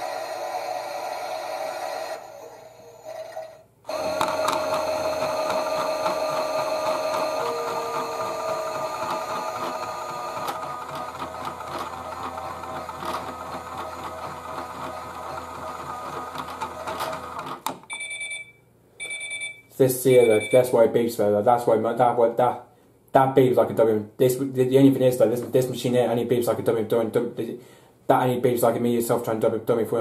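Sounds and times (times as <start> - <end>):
toy washing machine motor whining: 0.0 - 17.7.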